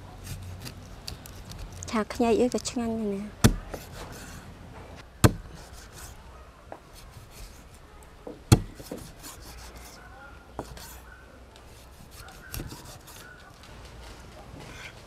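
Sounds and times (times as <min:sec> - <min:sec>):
knife chopping on wooden board: 0:03.4 - 0:04.1, 0:05.2 - 0:05.6, 0:08.5 - 0:09.2.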